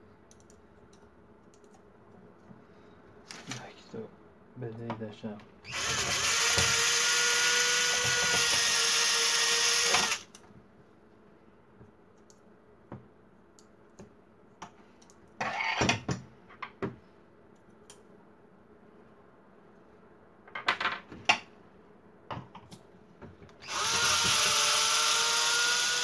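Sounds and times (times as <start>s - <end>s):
electric screwdriver running: 5.7s - 10.3s, 23.6s - 26.0s.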